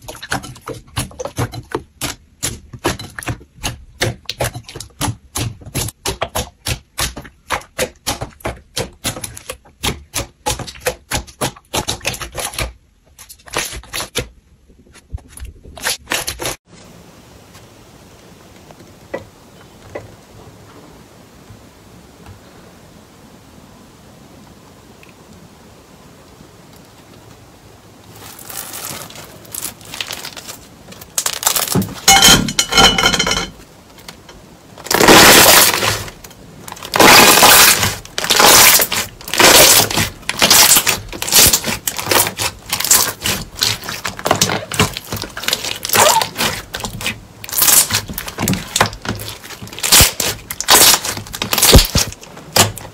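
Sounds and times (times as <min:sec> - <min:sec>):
slime squelching crackles: 0:28.0 - 0:32.1, 0:34.8 - 0:52.9
slime stretching: 0:28.1 - 0:32.1, 0:34.8 - 0:52.9.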